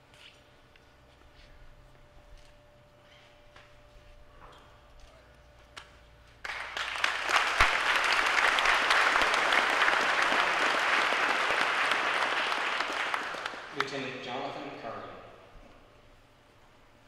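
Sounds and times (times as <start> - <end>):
audience applauding: 6.4 - 14.2.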